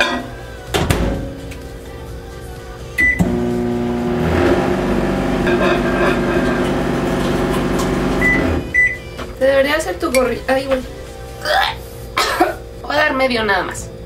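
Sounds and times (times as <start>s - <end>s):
microwave electrical hum: 0.0s - 14.0s
microwave keypad beep: 3.0s - 3.3s, 8.1s - 9.1s.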